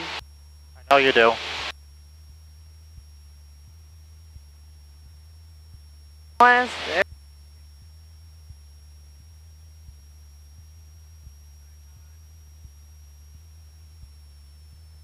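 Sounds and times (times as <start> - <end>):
high-pitched whine: 0.0 - 2.0, 5.7 - 9.2
propeller plane engine drone: 0.0 - 15.0.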